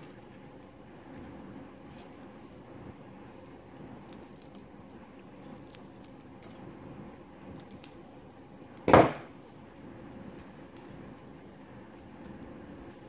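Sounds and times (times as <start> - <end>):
small clicks and snaps: 0.0 - 1.0, 3.7 - 6.7, 7.4 - 8.0, 11.9 - 12.6
loud short clunk: 8.9 - 9.3.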